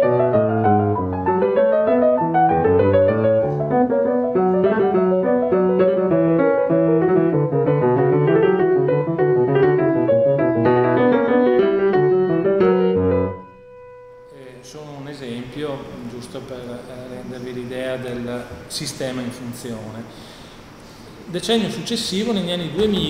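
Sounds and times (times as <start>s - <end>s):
piano playing: 0.0s - 18.0s.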